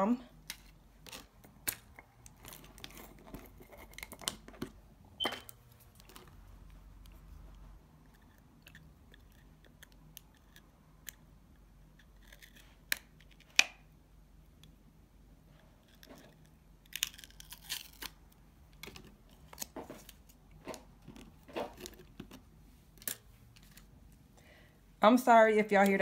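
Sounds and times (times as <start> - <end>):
plastic jar clicks and scrapes: 18.8 - 23.9.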